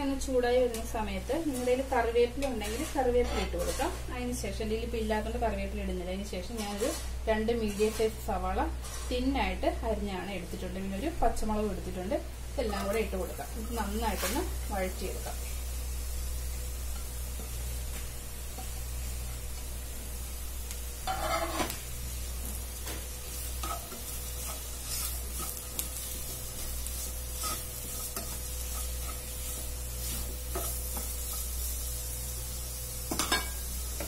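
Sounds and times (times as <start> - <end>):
onions sizzling in oil: 0.0 - 34.0
spatula scraping a pan: 2.4 - 4.0, 6.5 - 8.2, 8.8 - 9.3, 21.0 - 21.8, 23.0 - 31.9.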